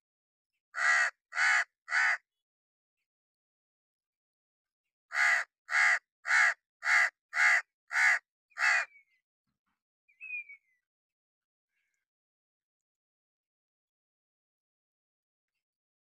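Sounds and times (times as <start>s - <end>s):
crow cawing: 0.8s - 2.2s, 5.1s - 9.0s.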